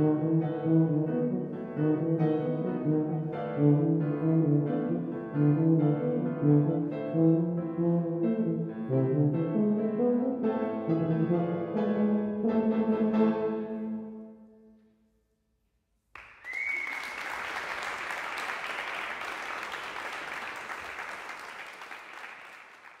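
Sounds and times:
tuba and piano chord: 0:00.0 - 0:14.9
audience applause: 0:16.2 - 0:23.0.

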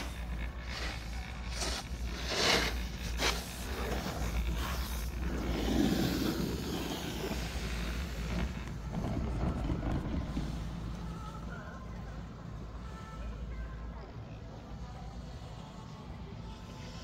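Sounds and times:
rustling scrapes: 0:00.0 - 0:10.9.

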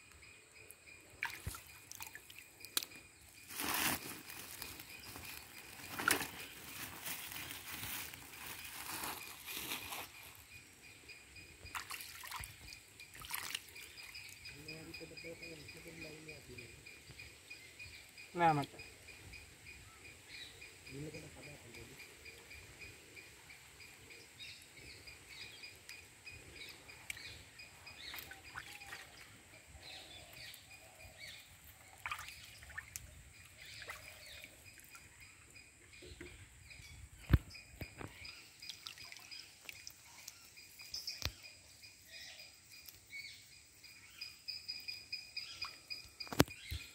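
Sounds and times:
river water dripping and trickling: 0:00.0 - 0:09.2, 0:10.1 - 0:17.3, 0:25.1 - 0:35.9, 0:37.4 - 0:42.0, 0:44.5 - 0:46.9
insects chirring: 0:00.0 - 0:46.9.

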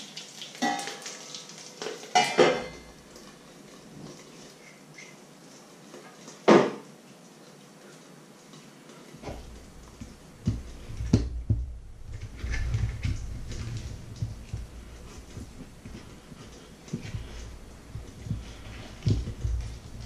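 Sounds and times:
low rumble: 0:09.3 - 0:20.0.

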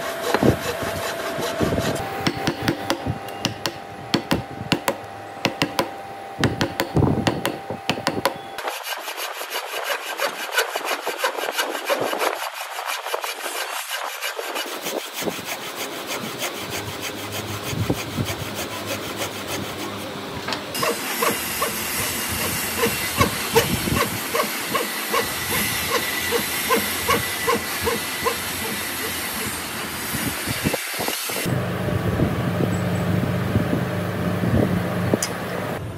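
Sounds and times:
saw rasping through wood: 0:00.0 - 0:03.0, 0:06.5 - 0:31.5
chisel knocking and scraping: 0:00.2 - 0:08.4.

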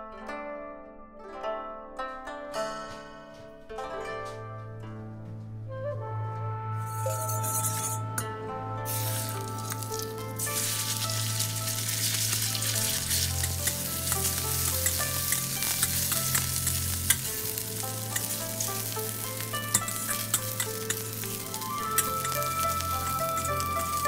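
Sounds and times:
background music with bass: 0:02.5 - 0:24.0
spatula scraping a pan: 0:07.0 - 0:08.1, 0:08.9 - 0:22.4
chicken sizzling in oil: 0:08.9 - 0:24.0.

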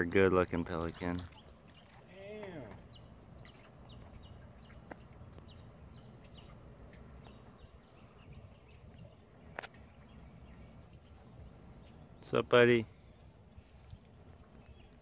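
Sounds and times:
low steady rumble: 0:00.0 - 0:15.0
faint high ticks and chirps: 0:13.6 - 0:15.0.

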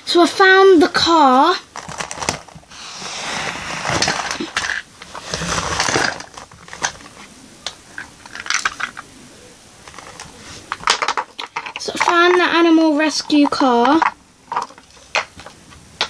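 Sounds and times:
rustling: 0:01.6 - 0:09.1
plastic toys clicking and knocking: 0:04.0 - 0:09.0, 0:09.8 - 0:15.6.

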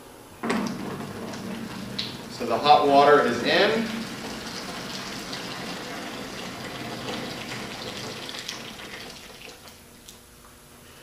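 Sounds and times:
hot water pouring into bottle: 0:01.3 - 0:09.8.

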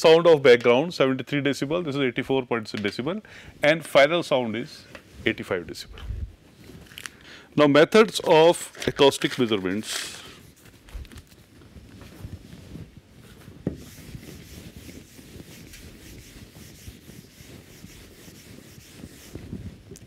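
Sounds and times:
duster rubbing on whiteboard: 0:12.3 - 0:20.0.

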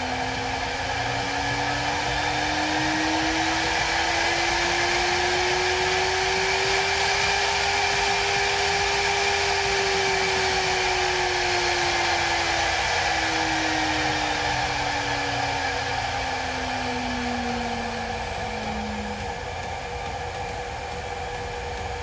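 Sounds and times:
spindle motor whining: 0:00.0 - 0:22.0.

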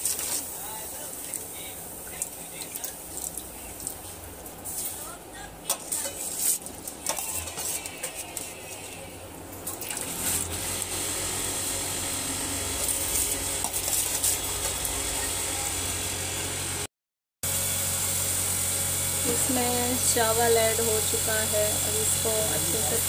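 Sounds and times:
steady hiss with low hum: 0:00.0 - 0:07.2
metal spoon scraping steel bowl: 0:05.7 - 0:09.0, 0:12.8 - 0:14.8.

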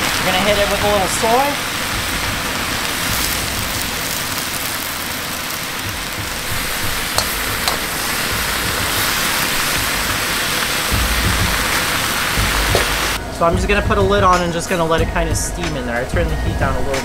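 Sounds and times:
vegetables sizzling in a wok: 0:00.0 - 0:13.2
metal spatula clicking on wok: 0:07.2 - 0:07.9.

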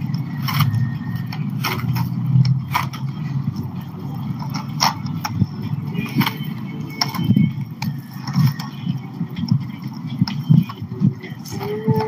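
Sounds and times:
skate wheels rolling over pavement: 0:04.2 - 0:12.0.

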